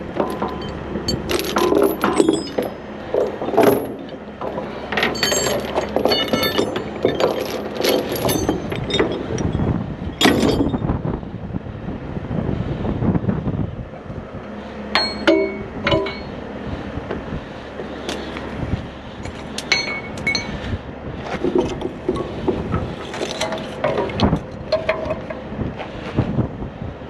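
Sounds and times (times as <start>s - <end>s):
low steady rumble: 0.0s - 27.0s
metallic clinks and clanks: 0.2s - 10.9s, 14.9s - 16.4s, 19.2s - 20.6s, 21.4s - 25.4s.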